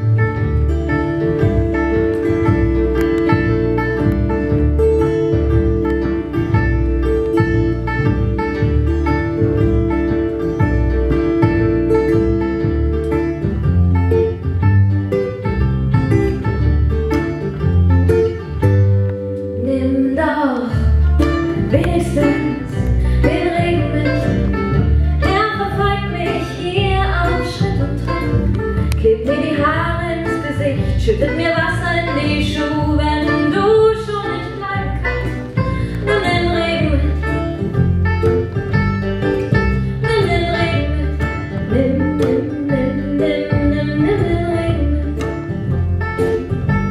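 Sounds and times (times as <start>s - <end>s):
acoustic guitar: 0.0s - 46.9s
banjo: 0.0s - 46.9s
plucked double bass: 0.0s - 46.9s
woman singing: 19.6s - 37.6s, 40.0s - 45.5s.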